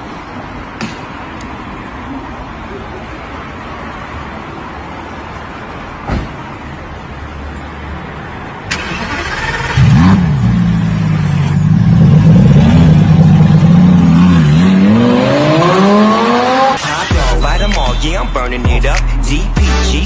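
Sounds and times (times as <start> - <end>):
thump: 6.0 - 6.4
engine starter cranking: 8.7 - 10.0
car engine revving and idling: 8.7 - 20.0.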